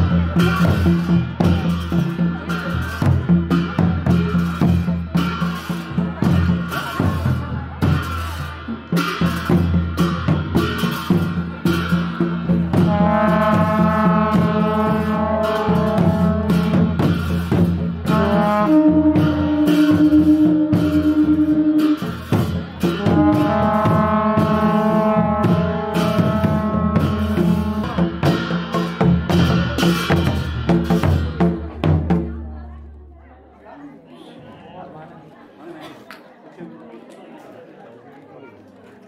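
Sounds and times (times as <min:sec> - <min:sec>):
steady drum beat: 0:00.0 - 0:32.5
wind instrument held notes: 0:12.7 - 0:17.4, 0:18.0 - 0:28.5.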